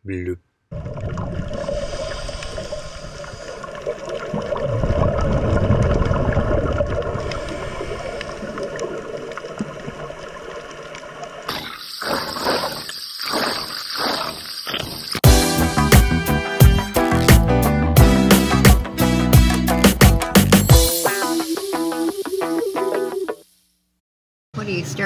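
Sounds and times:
air bubbling underwater: 0:00.7 - 0:10.4, 0:11.5 - 0:15.0
muffled underwater water rush: 0:00.7 - 0:15.2.

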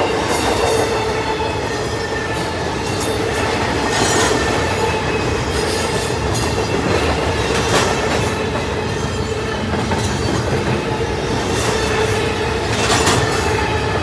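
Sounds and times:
train wheels rumbling on rail: 0:00.0 - 0:14.0
wheels clacking over rail joints: 0:02.8 - 0:14.0.

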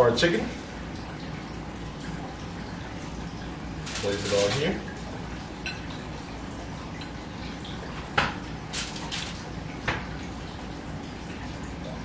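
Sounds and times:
foil crinkling: 0:08.7 - 0:09.4.

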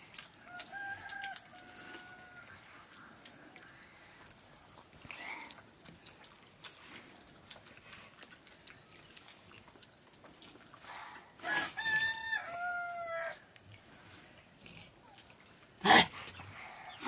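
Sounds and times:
hands eating from steel plates: 0:00.0 - 0:11.8
rooster crowing: 0:00.4 - 0:02.6, 0:11.4 - 0:13.4.

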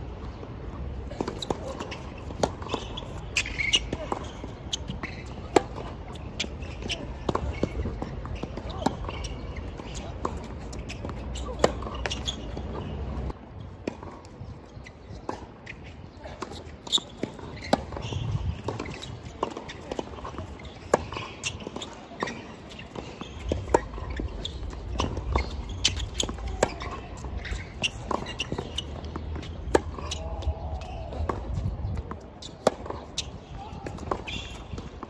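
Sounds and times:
tennis balls struck and bouncing: 0:00.2 - 0:35.0.

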